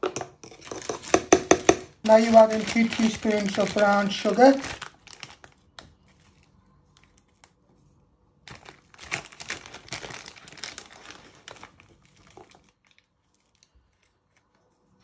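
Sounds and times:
paper bag crinkling: 2.0s - 6.5s, 8.4s - 13.8s.

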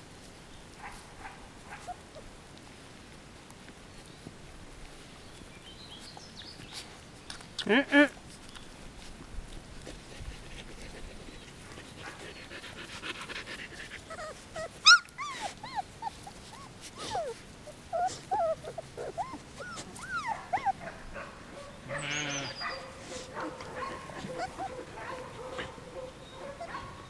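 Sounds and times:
puppies whining and yelping: 12.4s - 21.1s, 22.4s - 25.4s.

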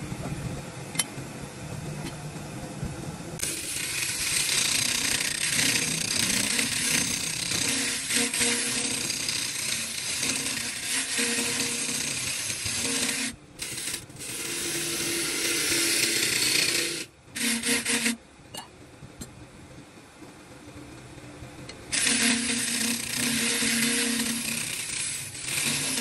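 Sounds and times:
steady humming tone: 0.0s - 26.0s
tool scraping wood: 3.4s - 18.2s, 21.9s - 26.0s.

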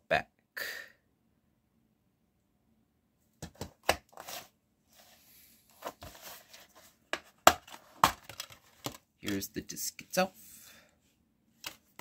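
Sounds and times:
plastic case clicking and snapping: 7.4s - 9.0s.

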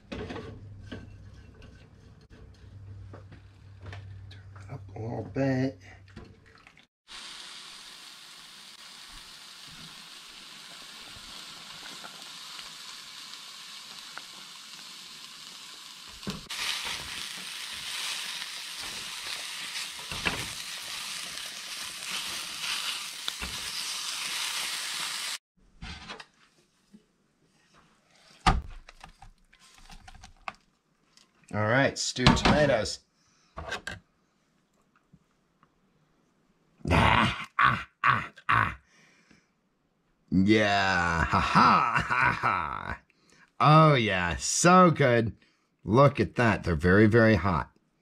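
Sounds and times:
peppers sizzling in a frying pan: 7.1s - 25.4s.

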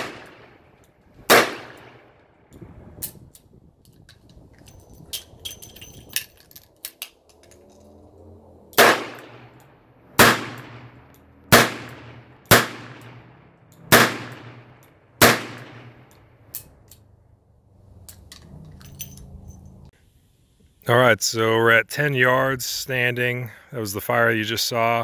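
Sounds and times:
revolver gunshots with echo: 0.0s - 2.2s, 8.8s - 16.1s
revolver metallic clicks: 10.6s - 17.2s.

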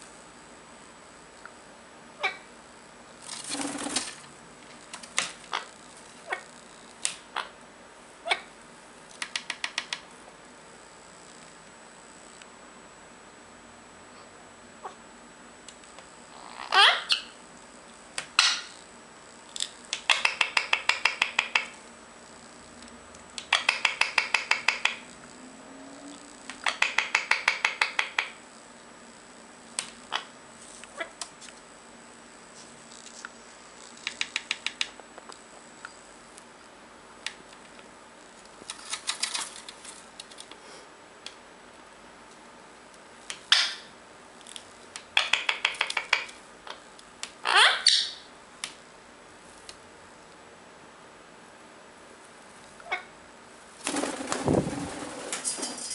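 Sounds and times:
parakeet clicking: 9.1s - 10.0s, 19.9s - 21.7s, 23.4s - 25.0s, 26.5s - 28.4s, 34.0s - 35.0s, 45.0s - 46.4s
parakeet short sharp calls: 47.4s - 48.2s.

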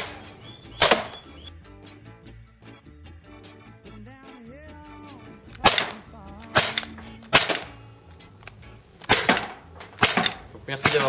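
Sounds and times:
airsoft pistol shots: 0.0s - 1.3s, 5.5s - 11.0s.

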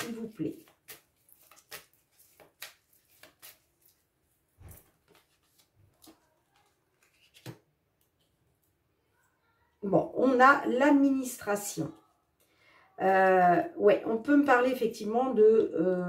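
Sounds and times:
cards being shuffled: 0.0s - 8.3s.

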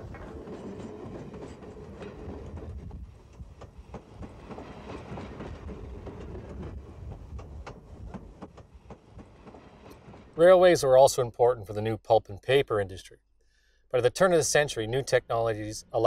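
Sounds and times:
wheels clicking over rail joints: 0.0s - 10.4s
train rumbling on rails: 0.0s - 10.9s.

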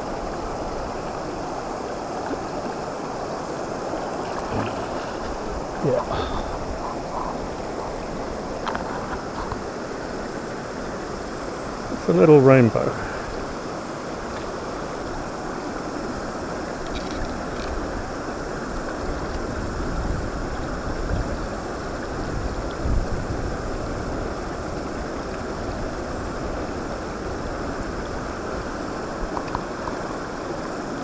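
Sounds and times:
wind rumble on microphone: 0.0s - 12.0s, 13.3s - 31.0s
stream running over stones: 0.0s - 31.0s.

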